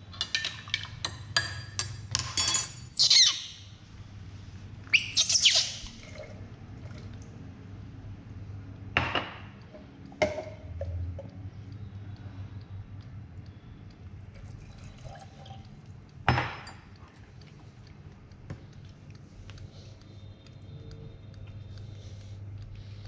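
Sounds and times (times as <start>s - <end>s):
baby monkey squealing: 2.7s - 3.6s, 4.9s - 6.0s.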